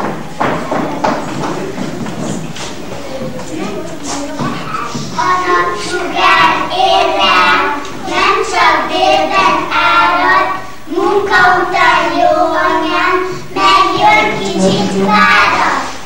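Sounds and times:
children singing in unison: 3.3s - 16.0s.

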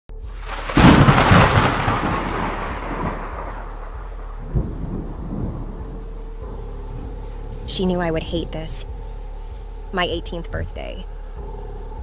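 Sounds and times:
low thud: 0.2s - 7.8s
thunder crack and rumble: 0.2s - 8.9s.

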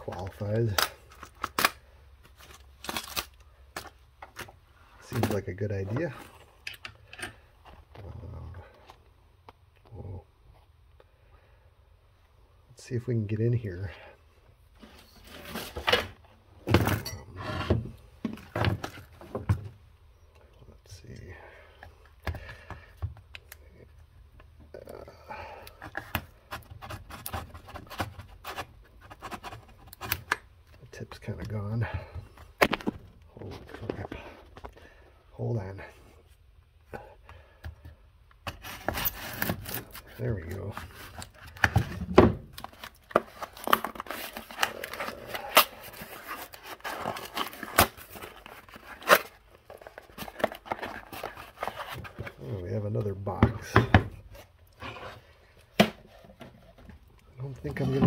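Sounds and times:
cardboard tearing and ripping: 2.4s - 3.4s, 38.5s - 52.2s.

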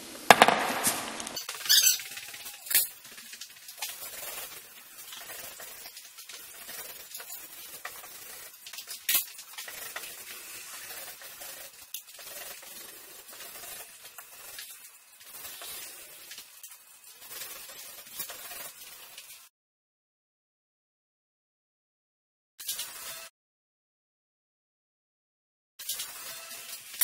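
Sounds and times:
sharp knock: 0.3s - 1.4s
paint roller on wall: 0.7s - 19.5s.

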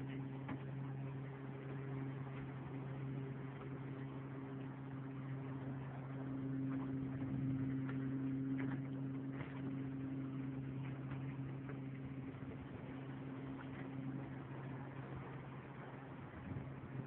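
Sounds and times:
outboard motor humming: 0.0s - 17.0s.

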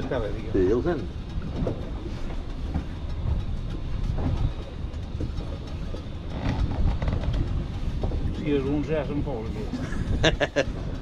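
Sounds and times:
motorboat rumbling: 0.0s - 11.0s
wind buffeting microphone: 0.0s - 11.0s.

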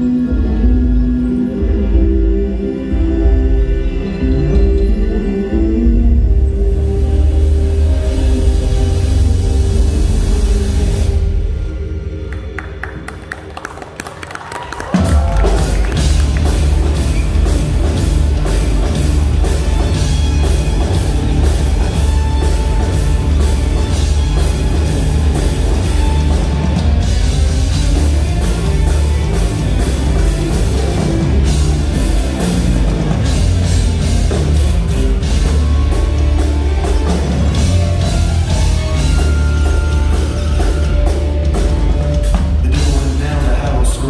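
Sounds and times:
heavy metal band playing: 0.0s - 12.0s, 14.8s - 44.0s
pounding drum kit: 12.8s - 44.0s.

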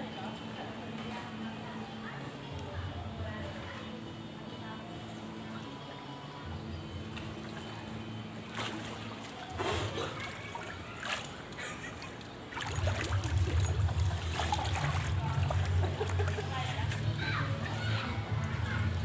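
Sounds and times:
water splashing: 7.2s - 17.8s.

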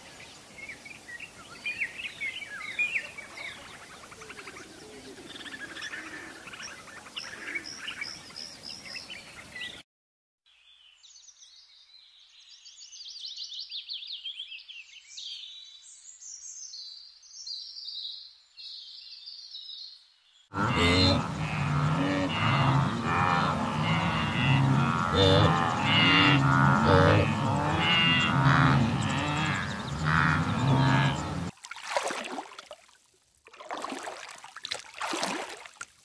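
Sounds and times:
background noise: 0.0s - 9.8s, 10.5s - 36.0s
birds chirping: 20.5s - 31.5s.

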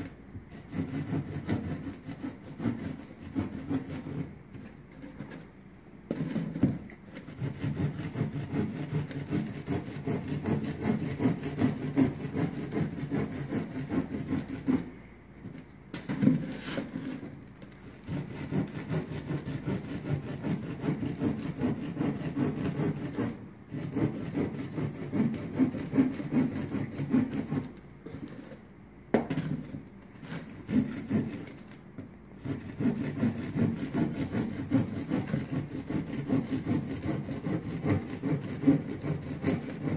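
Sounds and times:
hand saw scraping through tile: 0.0s - 5.5s, 6.1s - 28.7s, 29.3s - 31.7s, 32.4s - 39.9s.

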